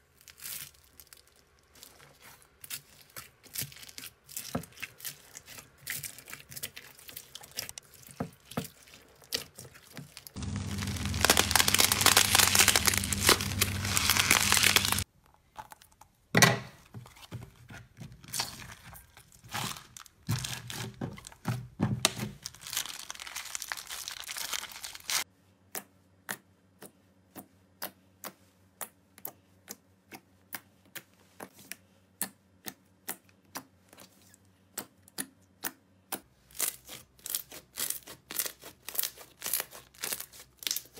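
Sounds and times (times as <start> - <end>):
slime crackling when kneaded: 8.8 - 15.1, 18.6 - 21.5, 22.3 - 25.2, 36.6 - 40.9
slime snapping and popping: 10.8 - 15.0.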